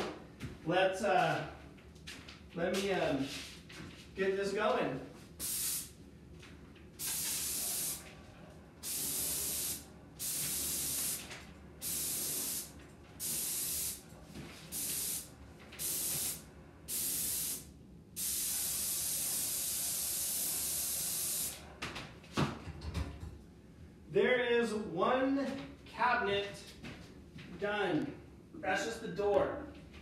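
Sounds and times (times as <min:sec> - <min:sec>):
paint sprayer hissing: 0:05.4 - 0:06.0, 0:07.0 - 0:08.1, 0:08.8 - 0:14.0, 0:14.7 - 0:21.6.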